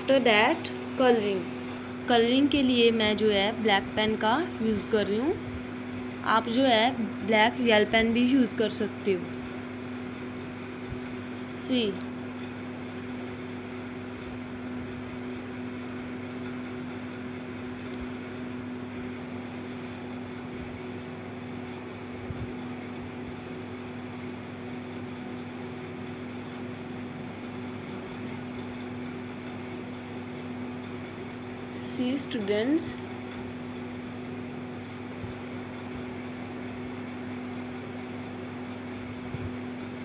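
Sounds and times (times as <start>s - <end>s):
low mechanical hum: 0.0s - 40.0s.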